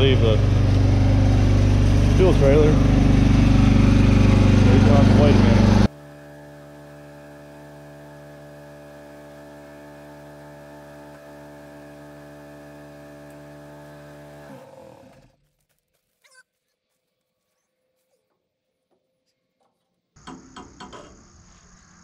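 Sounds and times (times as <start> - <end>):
small gasoline engine running: 0.0 - 15.4.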